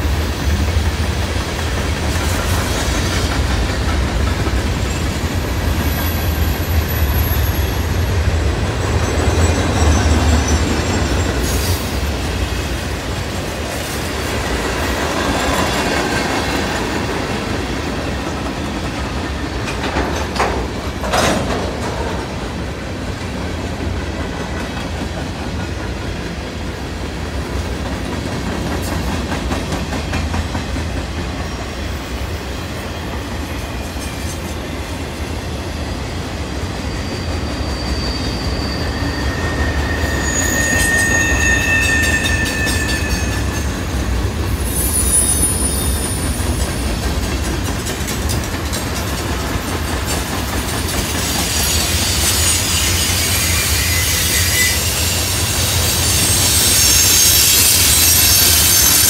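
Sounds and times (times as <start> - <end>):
diesel locomotive: 0.0 - 59.0
freight cars rumbling and clattering: 0.7 - 13.4, 14.3 - 22.6
train wheels squealing: 1.6 - 22.0, 28.7 - 59.0.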